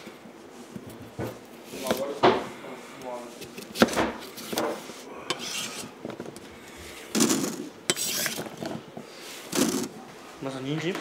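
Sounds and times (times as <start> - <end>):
knife scraping on cutting board: 3.3 - 6.0, 7.1 - 8.6.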